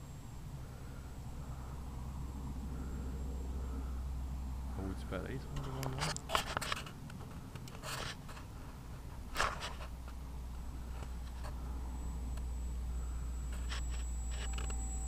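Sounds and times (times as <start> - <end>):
faint high whine: 0.0 - 15.0
steady low rumble: 0.0 - 15.0
camera handling rubs and scrapes: 5.6 - 7.0, 7.7 - 8.5, 9.3 - 10.1, 13.5 - 14.8.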